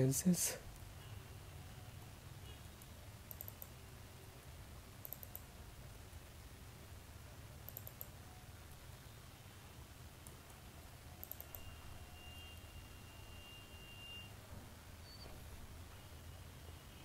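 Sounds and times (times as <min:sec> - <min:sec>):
computer keyboard clicking: 0:03.3 - 0:03.8, 0:05.0 - 0:05.5, 0:07.6 - 0:08.2, 0:11.2 - 0:11.7.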